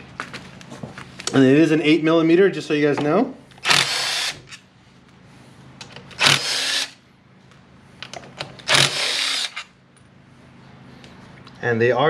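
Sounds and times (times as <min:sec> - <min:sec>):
cordless drill running: 0:03.6 - 0:04.6, 0:06.2 - 0:07.0, 0:08.7 - 0:09.7.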